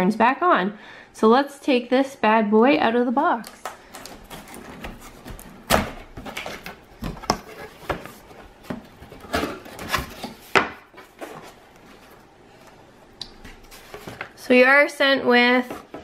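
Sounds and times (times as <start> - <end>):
cardboard knocks and scrapes: 4.2 - 12.2.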